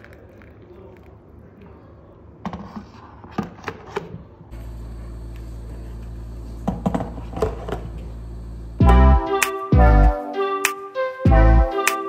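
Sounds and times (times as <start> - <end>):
low hum: 4.6 - 9.3.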